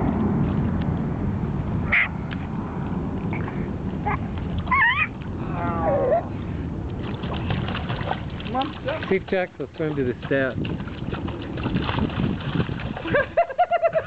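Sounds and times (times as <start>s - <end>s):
steady low rush: 0.0s - 14.0s
dog whining: 4.1s - 6.3s.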